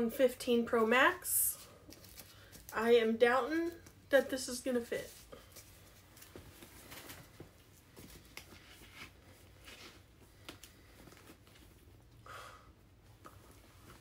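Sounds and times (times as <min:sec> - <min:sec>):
faint rustling: 0:04.8 - 0:12.0.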